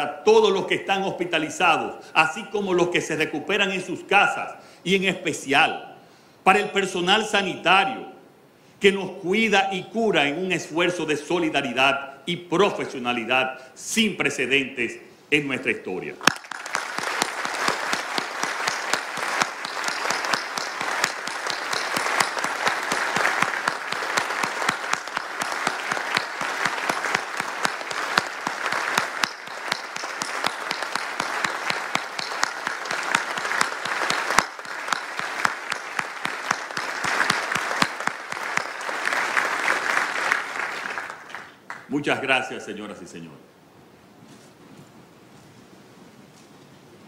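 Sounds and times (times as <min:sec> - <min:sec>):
audience applauding: 0:16.2 - 0:41.9.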